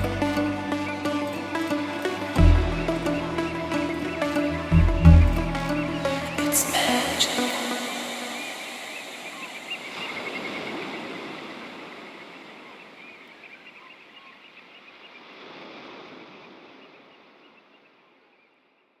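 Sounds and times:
ocean surf hissing: 0:05.6 - 0:12.6.

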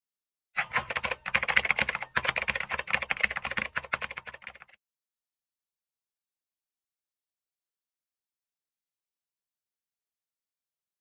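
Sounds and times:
keyboard typing: 0:00.6 - 0:04.8.

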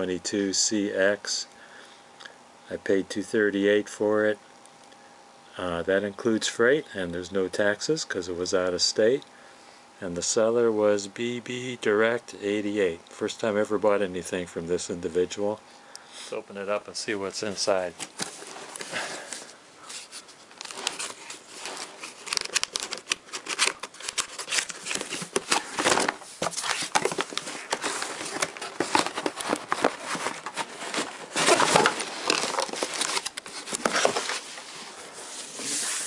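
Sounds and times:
cardboard box rustling: 0:18.0 - 0:36.0.

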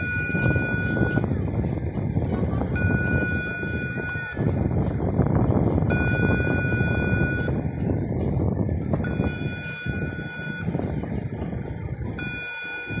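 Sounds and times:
high warning beep: 0:00.0 - 0:01.3, 0:02.7 - 0:04.5, 0:05.9 - 0:07.6, 0:09.0 - 0:10.8, 0:12.2 - 0:13.0
low rumble: 0:00.0 - 0:13.0.

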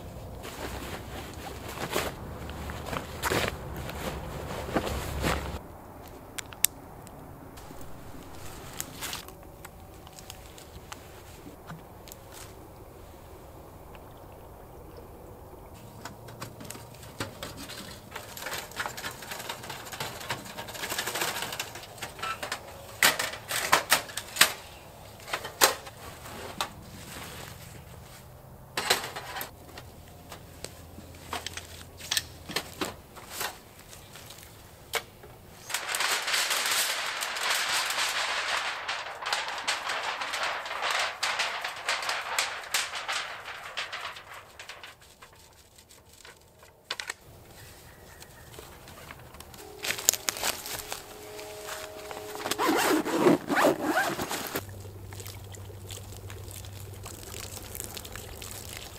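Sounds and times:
fabric and bags rustling: 0:00.0 - 0:05.6, 0:07.6 - 0:12.6, 0:35.4 - 0:54.6.

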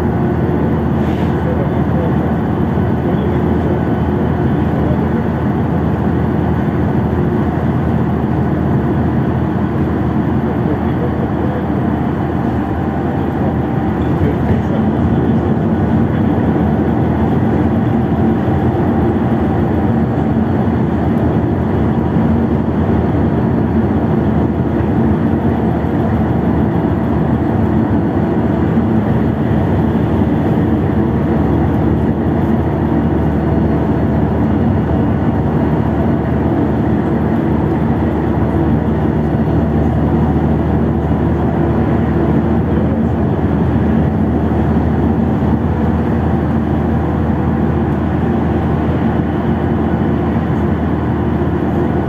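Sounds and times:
bus engine drone: 0:00.0 - 0:52.0
road and tyre noise: 0:00.0 - 0:52.0.

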